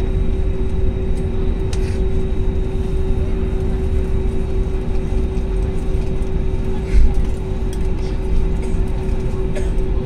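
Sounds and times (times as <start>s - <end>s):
airliner cabin rumble: 0.0s - 10.0s
engine hum: 0.0s - 10.0s.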